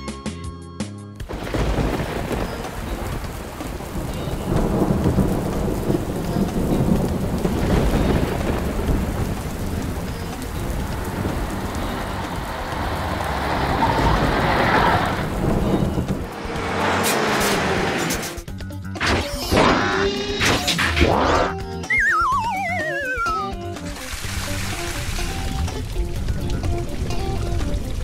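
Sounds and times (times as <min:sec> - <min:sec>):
heavy rain pouring: 0:01.2 - 0:18.5, 0:21.2 - 0:28.0
rolling thunder: 0:01.3 - 0:18.3.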